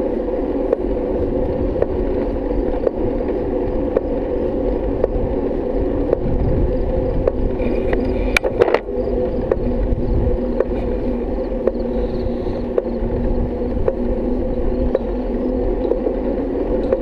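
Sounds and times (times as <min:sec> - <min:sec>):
bicycle clicking: 0:00.0 - 0:17.0
bicycle rolling on asphalt: 0:00.0 - 0:17.0
rattle of clicks: 0:07.2 - 0:13.0, 0:16.8 - 0:17.0.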